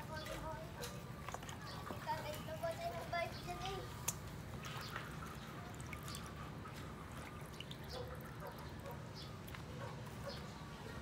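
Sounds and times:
low background noise: 0.0s - 11.0s
water dripping: 3.8s - 9.7s
wet squishing of raw chicken: 4.0s - 9.8s.

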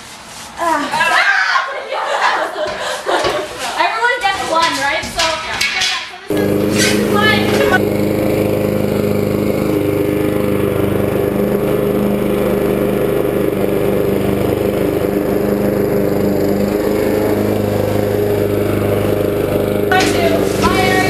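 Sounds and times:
lawn mower engine running: 6.3s - 21.0s.

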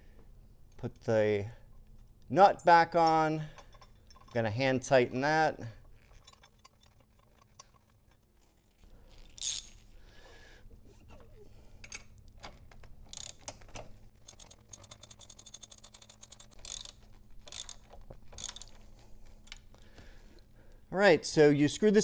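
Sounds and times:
tool clattering: 5.9s - 8.3s
ratchet wrench clicking: 9.2s - 9.8s, 13.1s - 13.5s, 14.2s - 18.8s.

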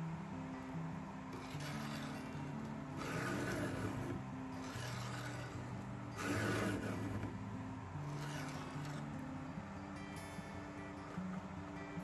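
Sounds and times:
quiet acoustic guitar music: 0.0s - 12.0s
files rasping on saw chain: 1.4s - 7.3s, 8.1s - 9.0s.

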